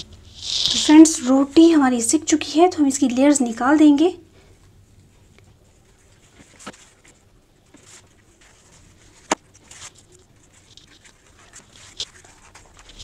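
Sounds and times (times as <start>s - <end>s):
flatbread peeling rustle: 0.0s - 1.9s, 5.7s - 13.0s.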